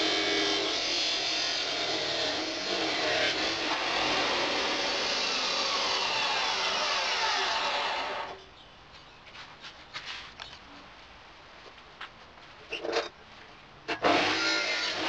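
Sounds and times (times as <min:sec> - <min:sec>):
power tool cutting steel: 0:00.0 - 0:08.4, 0:13.9 - 0:15.0.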